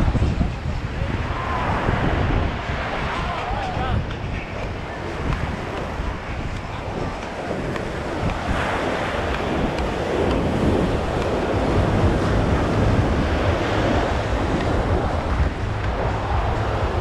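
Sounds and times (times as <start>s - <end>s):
ocean surf breaking: 0.0s - 17.0s
wind noise on microphone: 0.0s - 17.0s.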